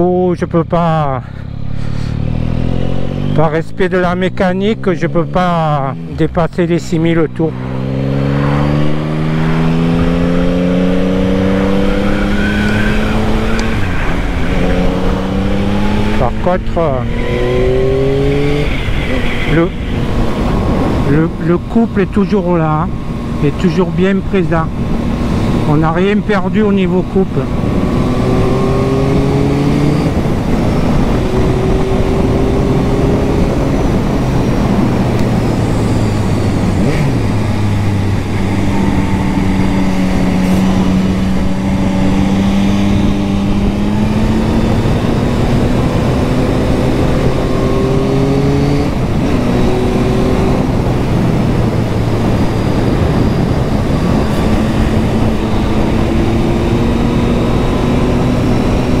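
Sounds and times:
motorcycle engine revving: 1.2 - 6.4, 7.2 - 59.0
wind on microphone: 17.0 - 21.7, 27.3 - 59.0.

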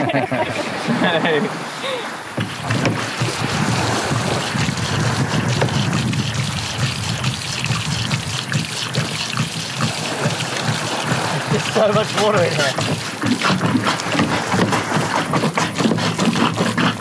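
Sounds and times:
water gushing onto sand: 0.0 - 17.0
hand pump pumping: 2.3 - 17.0.

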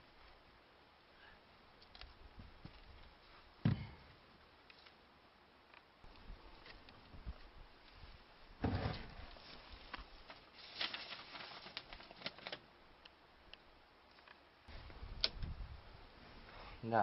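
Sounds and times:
handling thump: 3.6 - 4.0.

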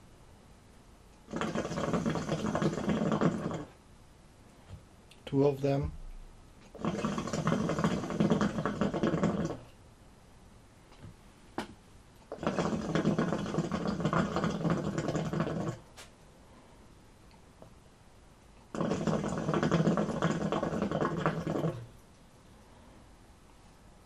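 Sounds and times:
hookah water bubbling: 1.2 - 3.8, 6.6 - 9.7, 12.2 - 15.9, 18.6 - 22.0.

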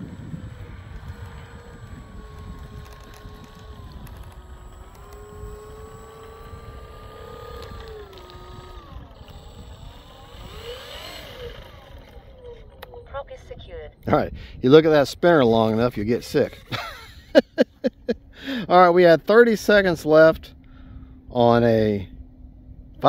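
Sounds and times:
wind rumble on microphone: 0.0 - 17.4
electric motor and propeller whine: 0.0 - 23.0.

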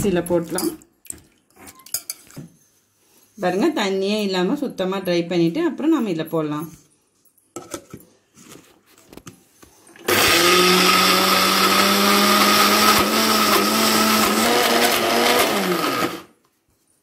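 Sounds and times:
mixer grinder motor whining: 10.0 - 16.3.

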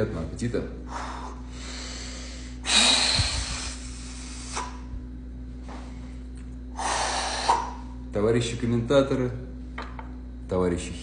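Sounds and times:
man breathing heavily: 0.8 - 4.9, 5.8 - 8.0.

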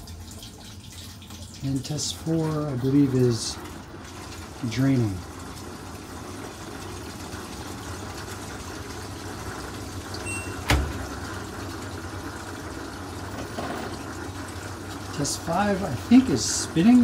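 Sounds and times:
washer drain pump humming: 0.0 - 17.0.

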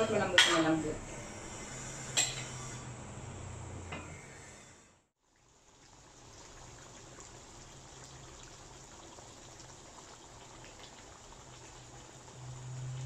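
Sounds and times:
sauce bubbling with small pops: 5.2 - 12.3.

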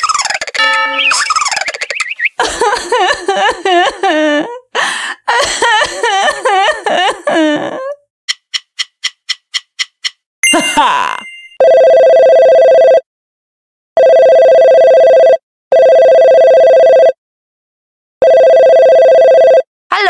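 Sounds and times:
electronic two-tone phone ring: 11.4 - 13.0, 14.0 - 17.2, 18.2 - 19.6.

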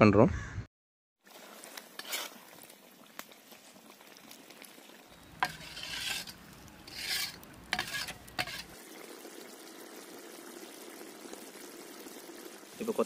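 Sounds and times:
faint sizzle: 1.2 - 13.0
ladle scraping pan: 1.8 - 2.4, 5.3 - 8.8.

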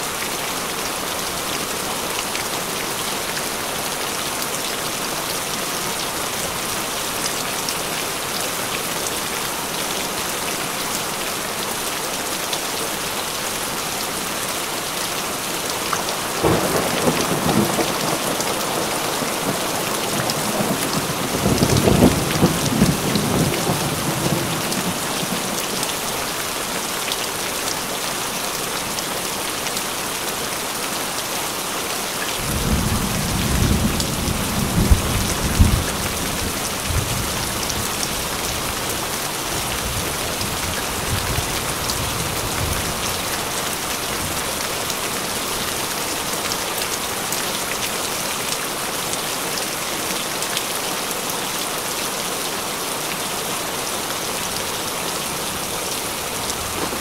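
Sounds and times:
rain falling on foliage: 0.0 - 57.0.

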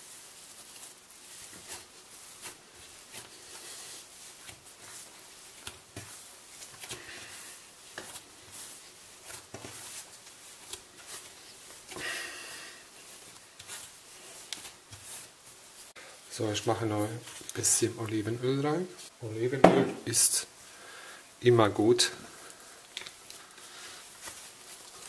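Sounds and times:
hands kneading dough on wood: 0.0 - 25.0.

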